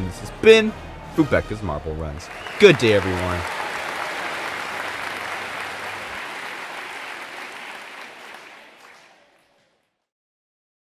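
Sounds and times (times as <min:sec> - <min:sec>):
applause: 0:02.2 - 0:10.1.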